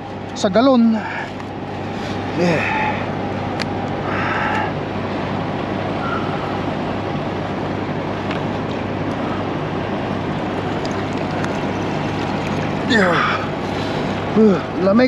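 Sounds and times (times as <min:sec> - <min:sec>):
diesel truck idling: 0:00.0 - 0:15.0.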